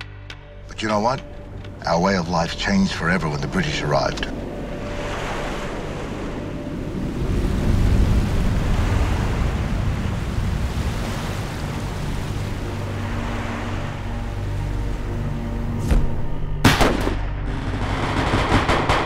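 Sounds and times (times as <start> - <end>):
low steady drone: 0.0 - 10.7, 11.6 - 19.0
wind: 0.0 - 19.0
ocean waves: 0.7 - 16.5.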